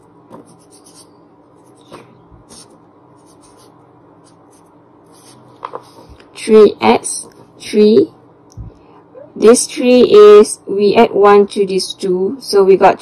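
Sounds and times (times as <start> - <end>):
marker pen scratching on paper: 0.3 - 6.2.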